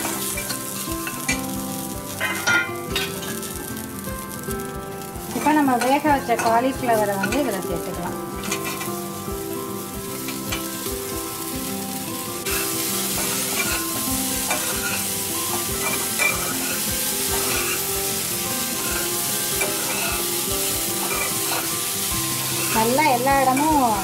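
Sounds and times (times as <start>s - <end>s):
vegetables sizzling in hot oil: 0.0s - 24.0s
metal spatula scraping: 12.5s - 13.9s, 14.5s - 18.0s, 18.6s - 20.3s, 21.0s - 21.7s.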